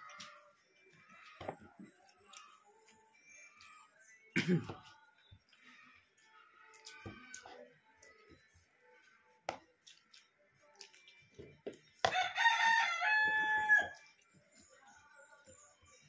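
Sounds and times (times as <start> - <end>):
rooster crowing: 12.1 - 14.0.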